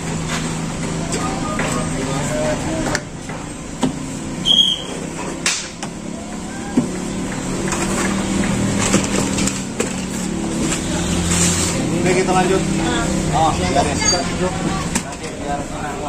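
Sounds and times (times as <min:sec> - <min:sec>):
low engine-like hum: 0:00.0 - 0:16.0
brief high squeak: 0:04.4 - 0:05.0, 0:14.0 - 0:14.4.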